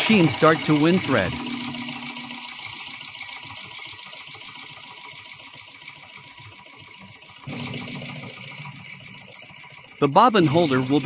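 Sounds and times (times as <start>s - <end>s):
bobbin winder rattling whir: 0.0s - 11.0s
low hum: 1.1s - 2.7s.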